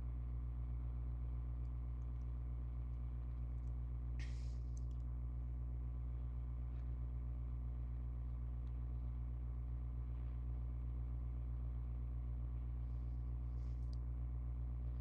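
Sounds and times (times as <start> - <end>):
low electrical hum: 0.0 - 15.0
faint clicks: 3.5 - 5.1.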